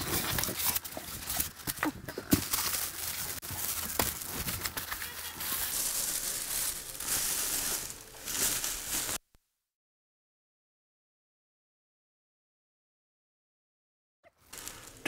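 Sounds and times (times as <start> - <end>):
plastic bag crinkling: 0.0 - 9.2, 14.4 - 15.0.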